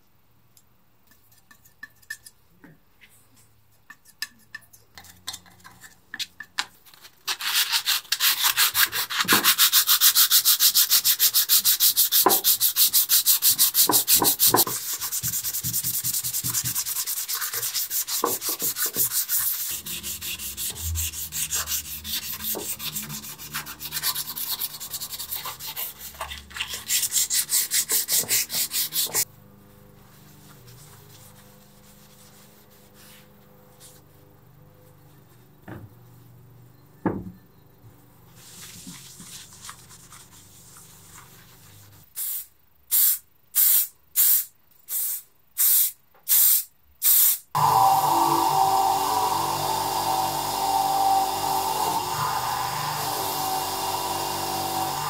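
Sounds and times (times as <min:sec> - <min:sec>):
hand sanding rasping strokes: 0:08.2 - 0:29.3.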